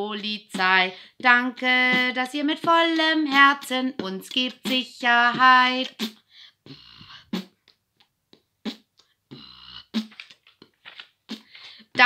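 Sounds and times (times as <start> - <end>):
person singing: 0.0 - 6.1
vocal percussion clicks: 8.4 - 11.8.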